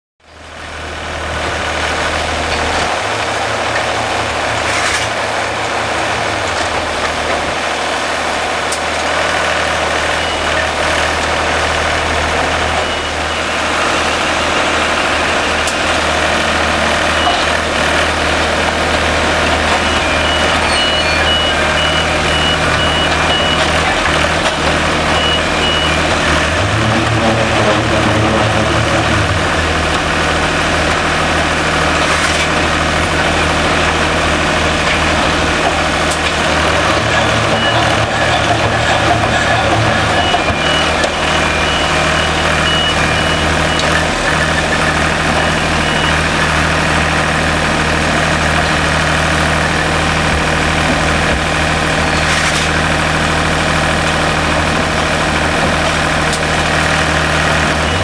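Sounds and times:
machine engine running: 0:00.8 - 0:58.0
high beeping: 0:12.6 - 0:15.7, 0:19.7 - 0:23.9, 0:25.1 - 0:26.1, 0:36.5 - 0:46.3.

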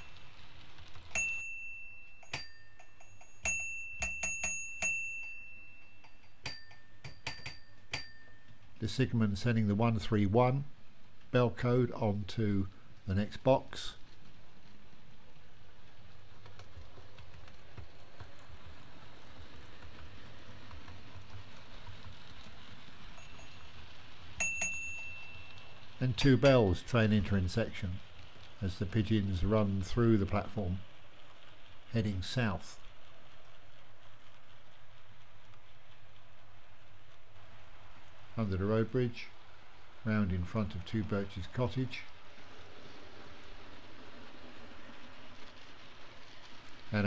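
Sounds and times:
lower-pitched bell ring: 0:00.0 - 0:00.4, 0:01.2 - 0:08.6, 0:23.2 - 0:23.8, 0:24.4 - 0:26.7
signal box block bell ringing: 0:00.0 - 0:00.4, 0:01.1 - 0:08.6, 0:23.2 - 0:23.8, 0:24.4 - 0:26.8
model train wheels on rail: 0:00.0 - 0:47.0.

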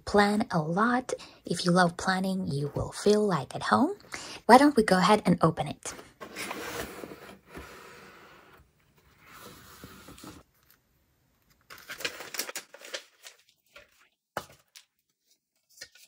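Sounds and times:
tissue paper crinkling: 0:11.6 - 0:16.0.

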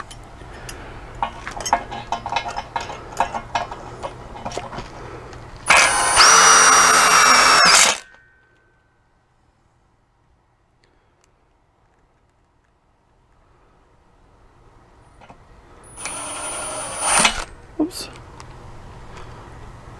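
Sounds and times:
cordless drill driving screw: 0:05.7 - 0:08.0, 0:16.0 - 0:17.5.

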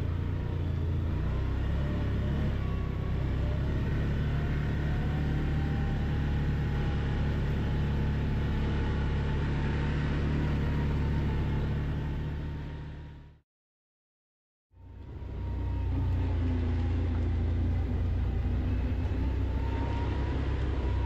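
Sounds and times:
quad engine running: 0:00.0 - 0:13.4.

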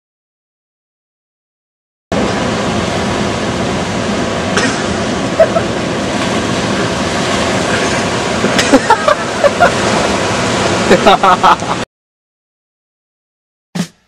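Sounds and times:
ocean surf breaking on beach: 0:02.1 - 0:11.8.

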